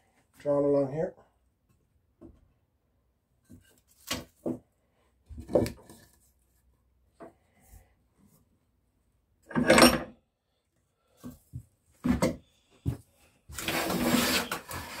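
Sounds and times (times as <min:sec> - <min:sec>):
wood scraping: 0:12.0 - 0:15.0.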